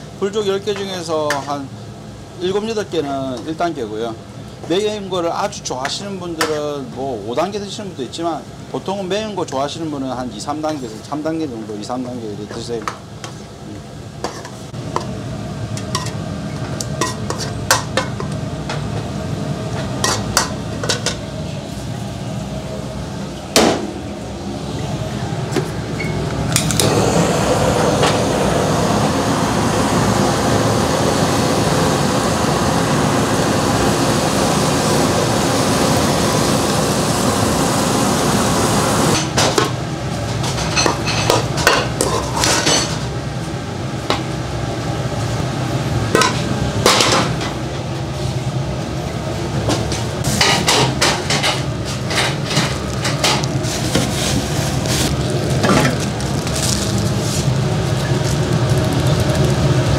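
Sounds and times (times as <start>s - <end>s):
kitchen blowtorch roaring: 13.3s - 59.9s.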